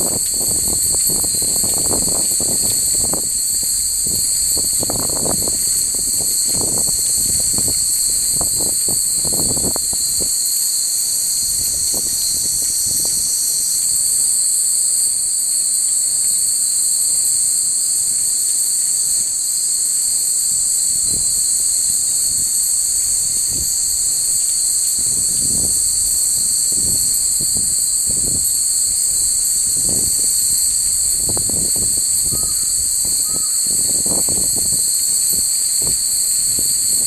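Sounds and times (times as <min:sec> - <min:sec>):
wind rumbling on microphone: 0:00.0 - 0:10.6, 0:11.2 - 0:13.6, 0:20.9 - 0:37.0
insects shrilling: 0:00.0 - 0:14.5, 0:20.9 - 0:37.0.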